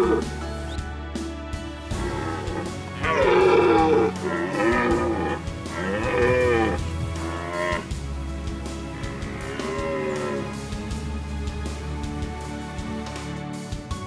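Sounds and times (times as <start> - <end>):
deer stag roaring: 0.0 - 0.4, 1.9 - 8.0, 8.8 - 10.6.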